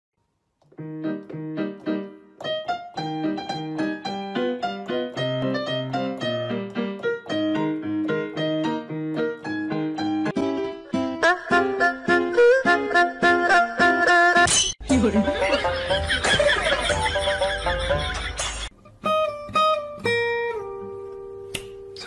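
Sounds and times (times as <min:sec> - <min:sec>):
piano music: 0:00.6 - 0:18.7.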